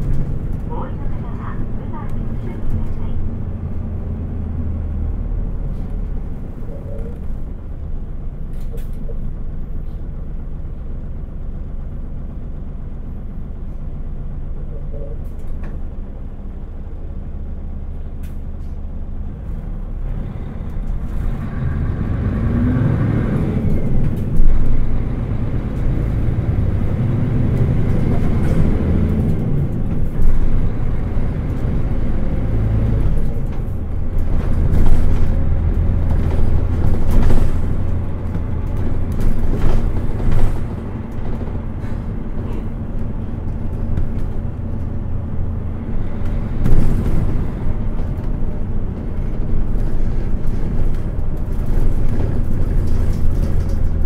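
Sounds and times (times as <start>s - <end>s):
bus engine running: 0.0s - 54.0s.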